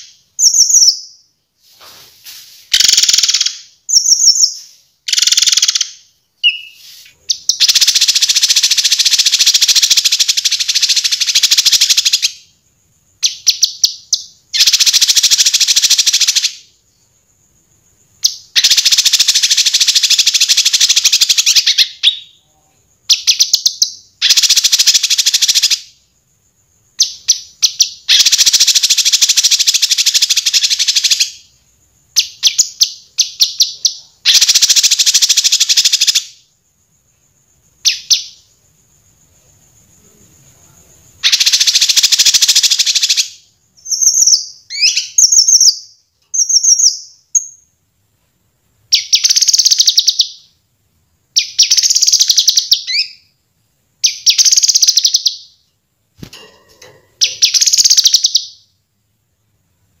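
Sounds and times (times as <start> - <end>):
songbird trills and chirps: 0.0 - 1.4, 2.6 - 47.8, 48.8 - 53.4, 54.0 - 58.9.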